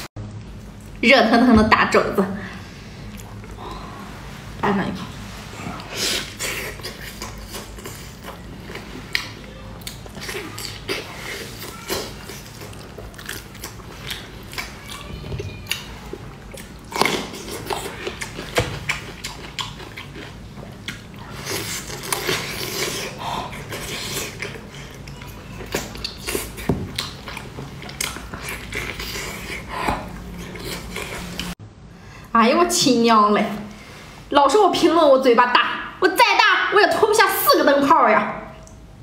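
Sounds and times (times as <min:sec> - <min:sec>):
wet chewing and smacking: 0:05.8 - 0:31.6.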